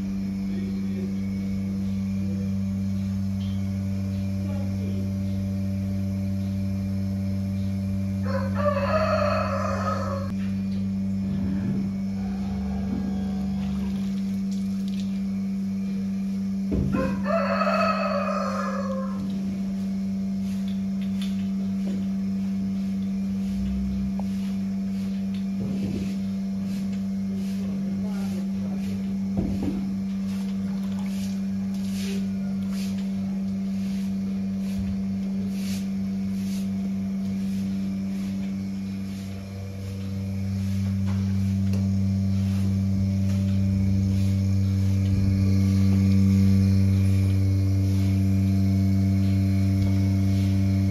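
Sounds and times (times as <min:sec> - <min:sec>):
steady low hum: 0:00.0 - 0:50.9
rooster crowing: 0:08.0 - 0:10.4, 0:11.6 - 0:14.1, 0:16.8 - 0:19.5.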